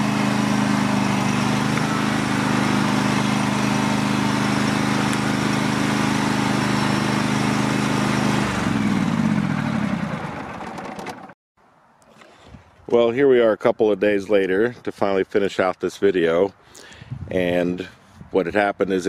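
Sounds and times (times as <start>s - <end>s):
garden tractor engine running: 0.0s - 11.4s.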